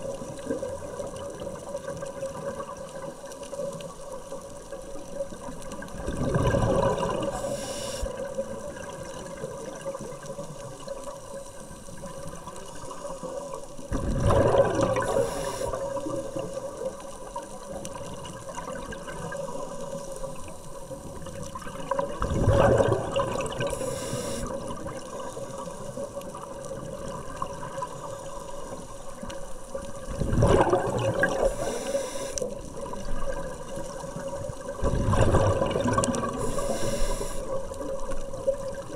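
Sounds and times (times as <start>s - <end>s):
underwater exhaled bubbles gushing: 0.0s - 38.9s
faint steady hum: 2.7s - 38.9s.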